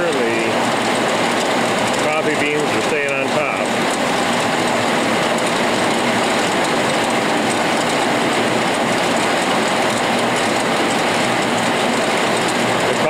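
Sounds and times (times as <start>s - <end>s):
sifter beans rattling: 0.0s - 13.0s.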